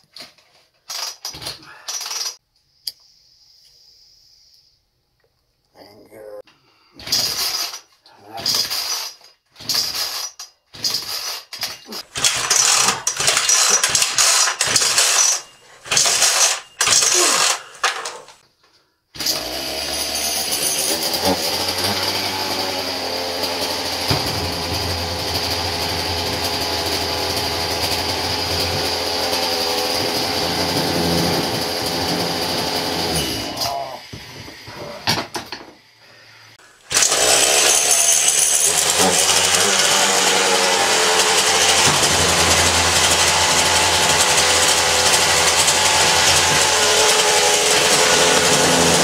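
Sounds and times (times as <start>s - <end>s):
chainsaw engine running: 12.1s - 18.4s, 19.3s - 33.6s, 36.9s - 49.0s.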